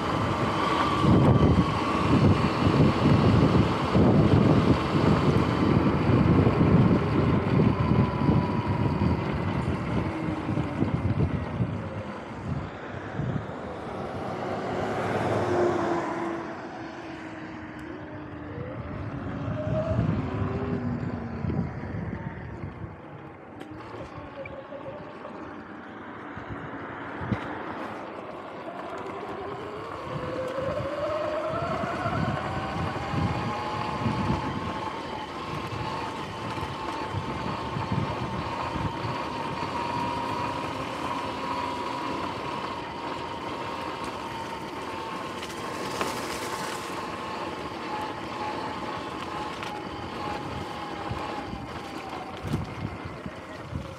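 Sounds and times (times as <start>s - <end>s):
wind on microphone: 0.0s - 14.7s, 18.4s - 23.6s, 29.6s - 40.8s
electric motor and chain whine: 0.0s - 53.9s.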